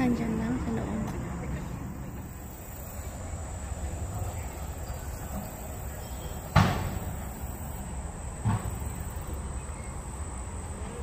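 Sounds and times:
dull thump: 0:06.5 - 0:07.2, 0:08.4 - 0:09.4.

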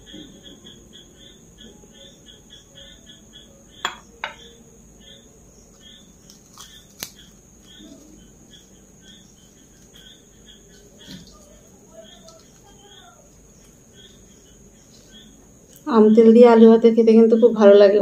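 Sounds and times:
crickets chirping: 0:00.0 - 0:18.0
metal spoon clinking glass bowl: 0:03.8 - 0:04.5.

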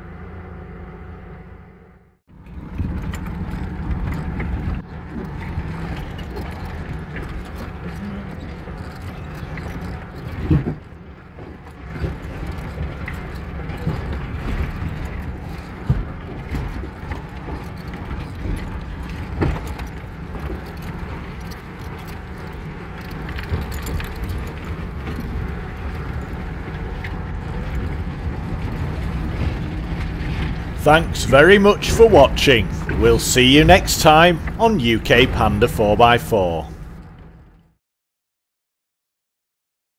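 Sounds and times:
car engine and road rumble: 0:00.0 - 0:37.7
knocks and rattles: 0:02.6 - 0:30.8.

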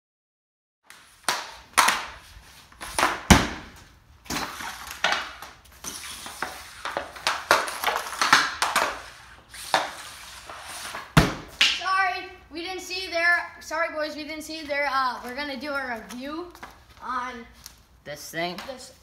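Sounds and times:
hockey stick striking puck: 0:00.9 - 0:11.9
puck striking target: 0:01.0 - 0:11.9.

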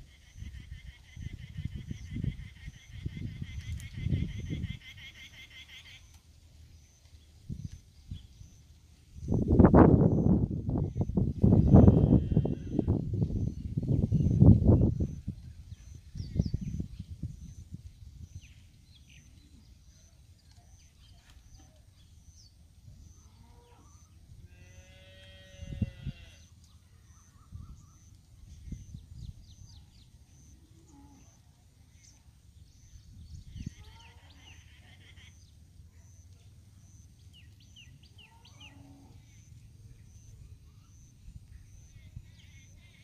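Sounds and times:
farm animal calling: 0:00.0 - 0:06.2, 0:11.6 - 0:12.9, 0:23.0 - 0:28.1, 0:33.5 - 0:43.0
small birds chirping: 0:00.0 - 0:43.0.

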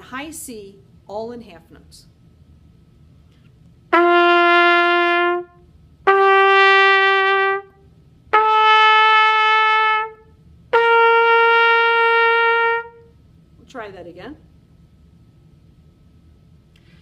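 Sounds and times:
trumpet playing held notes: 0:03.9 - 0:13.1
breath between notes: 0:16.8 - 0:17.0.

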